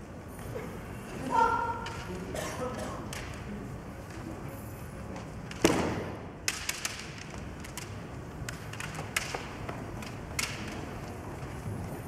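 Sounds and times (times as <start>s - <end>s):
bamboo swords clacking: 5.5s - 10.9s.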